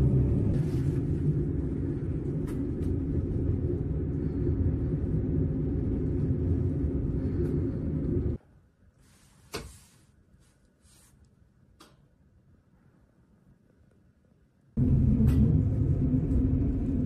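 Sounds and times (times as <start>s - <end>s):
train rumbling inside carriage: 0.0s - 8.4s, 14.8s - 17.0s.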